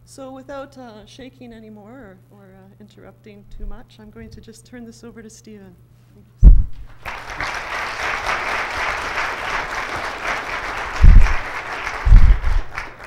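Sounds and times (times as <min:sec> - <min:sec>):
loud low thump: 0:06.4 - 0:07.0, 0:11.0 - 0:11.4, 0:12.0 - 0:12.7
audience applauding: 0:06.9 - 0:13.0.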